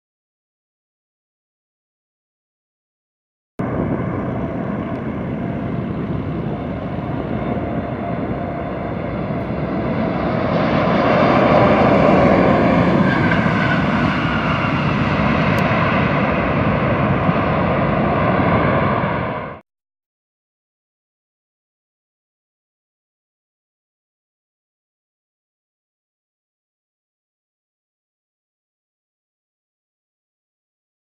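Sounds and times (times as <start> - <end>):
jet airliner landing: 3.6 - 19.6.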